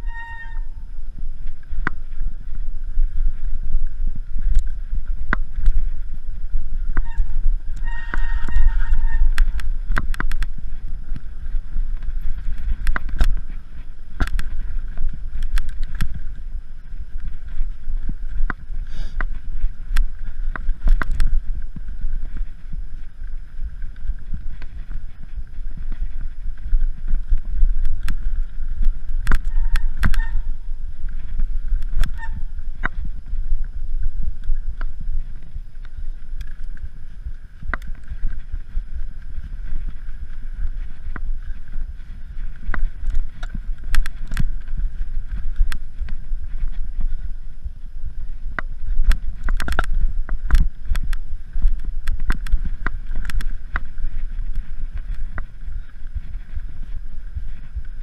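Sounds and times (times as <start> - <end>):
short high squeal: 0.0 - 0.9, 7.1 - 9.4
bike rattling and clicking: 0.0 - 58.0
wind rumble on microphone: 0.0 - 58.0.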